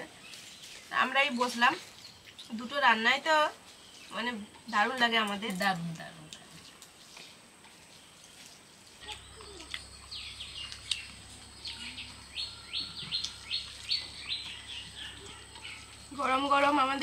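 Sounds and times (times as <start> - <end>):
bird chirping: 7.9 - 17.0.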